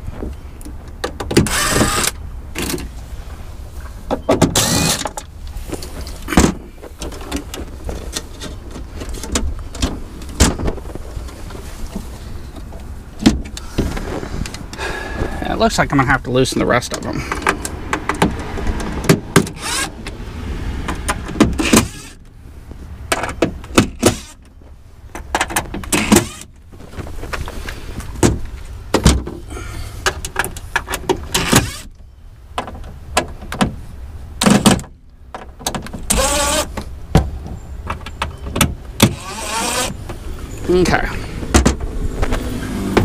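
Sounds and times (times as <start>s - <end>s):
cordless drill whirring: 1.5s - 2.2s, 19.6s - 19.9s, 39.2s - 40.0s.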